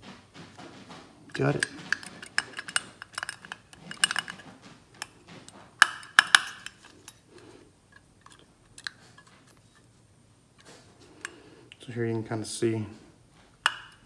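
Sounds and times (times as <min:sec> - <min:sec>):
metal fuel pump parts clicking: 0:01.3 - 0:09.9, 0:13.6 - 0:14.0.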